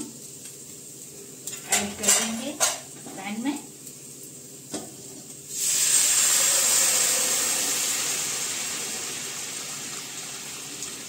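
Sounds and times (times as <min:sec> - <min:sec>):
liquid hissing in hot pan: 0:02.2 - 0:11.0.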